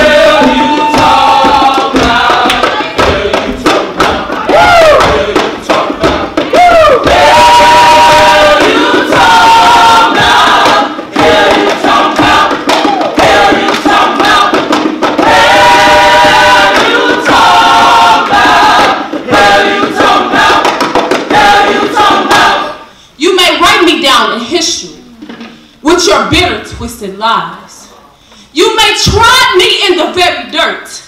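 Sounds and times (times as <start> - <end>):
group singing in harmony: 0.0 - 23.1.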